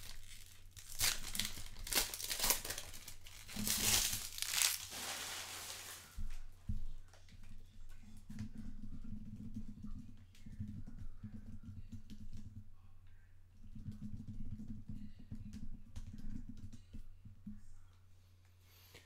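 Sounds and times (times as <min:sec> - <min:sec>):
cards clicking and rustling: 0:00.0 - 0:06.0.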